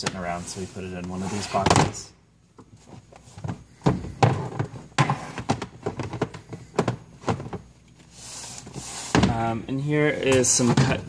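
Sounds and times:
knocks and clunks of cases: 1.1 - 7.9, 8.7 - 9.5, 10.3 - 11.0.

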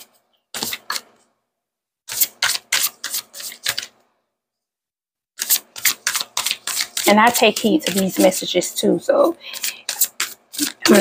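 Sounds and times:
cards being shuffled: 9.6 - 11.0.

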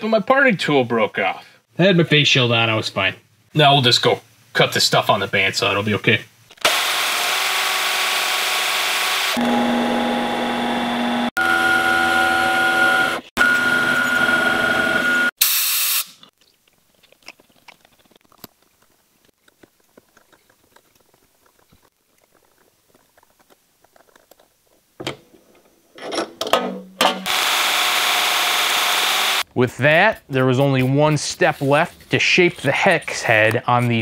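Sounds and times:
lathe motor whining: 6.6 - 15.3, 27.3 - 29.4.

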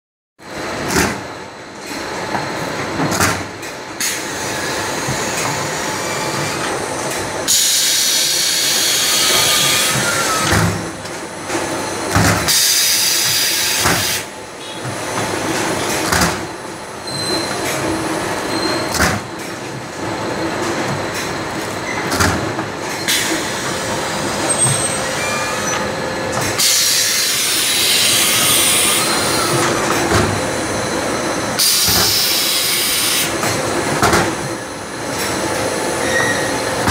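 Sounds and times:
conveyor mechanical clatter: 0.4 - 36.9
machine hiss: 7.5 - 10.5, 12.5 - 14.3, 26.6 - 29.6, 31.5 - 33.4.

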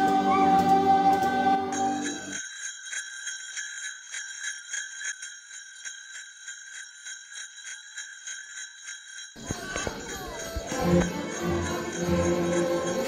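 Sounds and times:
sleigh bells jingling: 0.0 - 13.0.

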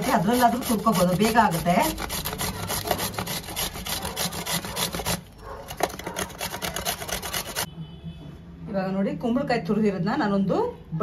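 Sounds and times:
pumpkin grated on box grater: 0.0 - 7.7.

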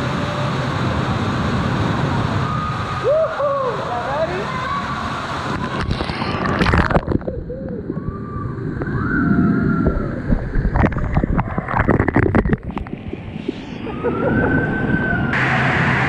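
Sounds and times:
water splashing and sloshing: 4.1 - 16.0.

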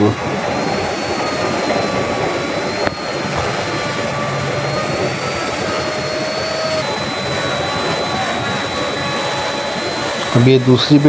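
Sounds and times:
wood router whining: 0.0 - 11.0
click: 2.7 - 3.5.

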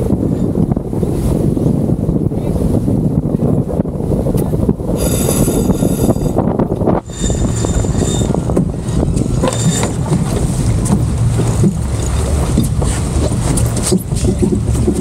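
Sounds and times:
water rushing past hull: 0.0 - 15.0
wind buffeting microphone: 0.0 - 15.0
boat knocks: 5.3 - 15.0.

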